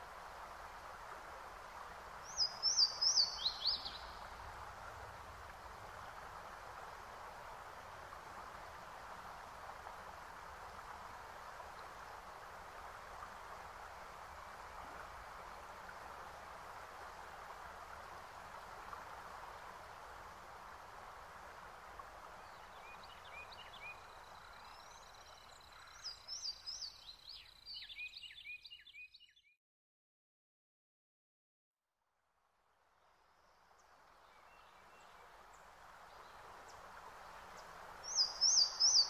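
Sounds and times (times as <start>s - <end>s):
background hiss: 0.0s - 28.5s, 32.6s - 39.0s
birds chirping: 37.6s - 39.0s.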